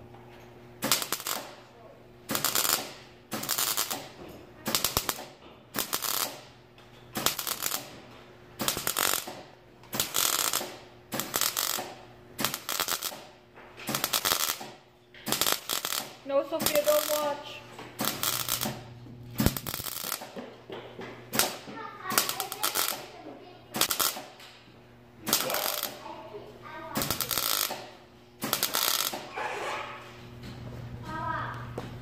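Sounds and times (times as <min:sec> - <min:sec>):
welder arc crackling: 0:00.8 - 0:01.6, 0:02.3 - 0:06.6, 0:07.2 - 0:20.4, 0:21.3 - 0:24.4, 0:25.2 - 0:26.3, 0:26.9 - 0:29.3.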